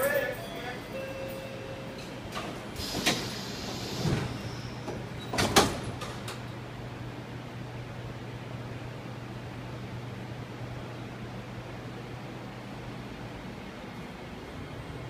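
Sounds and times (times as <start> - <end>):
train doors closing: 0.0 - 8.4.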